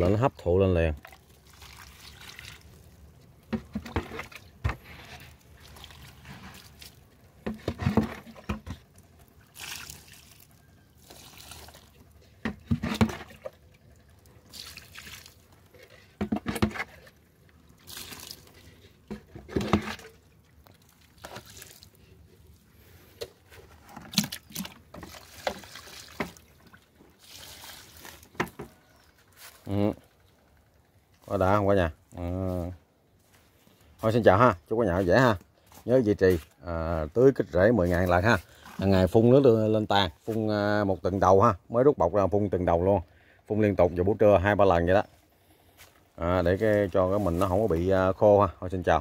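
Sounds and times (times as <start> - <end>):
liquid splashing into potting soil: 0.8 - 22.6, 24.0 - 28.8.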